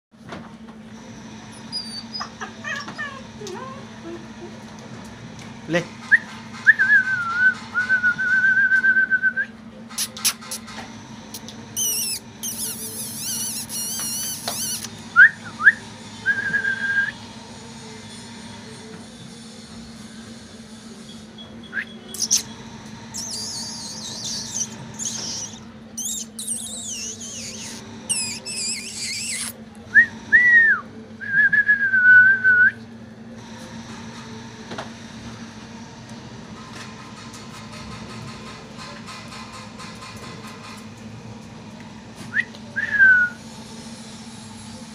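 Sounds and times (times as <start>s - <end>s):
puppy whining: 1.4s - 4.6s, 11.4s - 16.7s, 21.1s - 22.5s, 23.1s - 29.6s.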